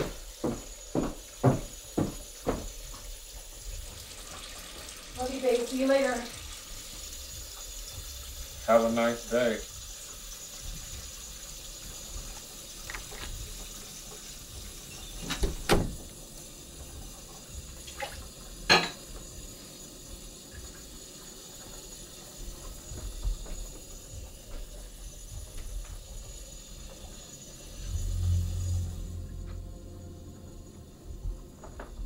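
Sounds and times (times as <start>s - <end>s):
tap running into sink: 0.0s - 5.0s, 11.9s - 16.2s
dishes clinking: 18.7s - 19.1s.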